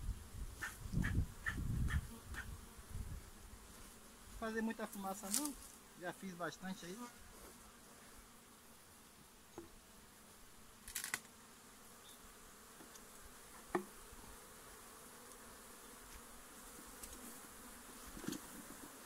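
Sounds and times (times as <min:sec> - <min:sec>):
bees buzzing: 0:00.0 - 0:19.0.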